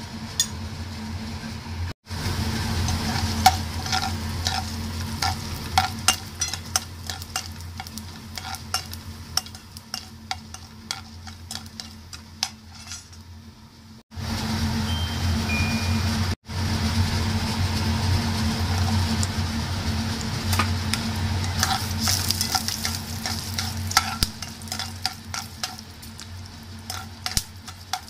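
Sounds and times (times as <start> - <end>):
faint sizzle: 0.0 - 28.0
steady low hum: 0.0 - 28.0
ladle scraping a pan: 2.8 - 13.2, 20.5 - 28.0.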